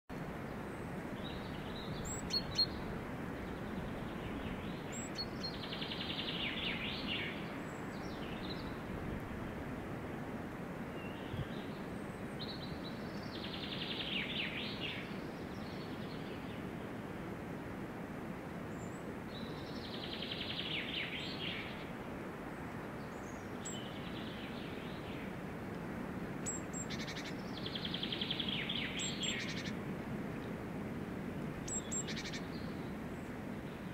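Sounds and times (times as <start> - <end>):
steady background hiss: 0.1 - 33.9.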